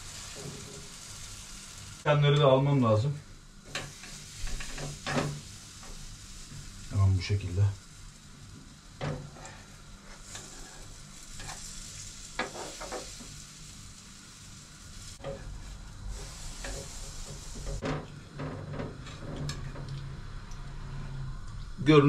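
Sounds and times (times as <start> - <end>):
pancakes sizzling in a pan: 0.0 - 2.1, 3.6 - 19.1
metal utensil scraping a pan: 10.2 - 11.7.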